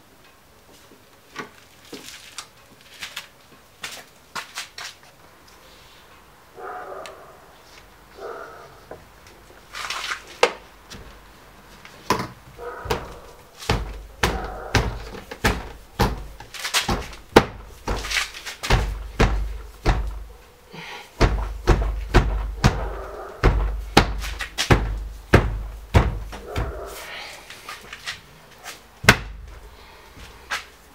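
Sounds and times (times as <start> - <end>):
hands knocking trim onto car door: 12.1 - 20.2, 21.2 - 26.8
sharp thumps on door panel: 21.2 - 26.9.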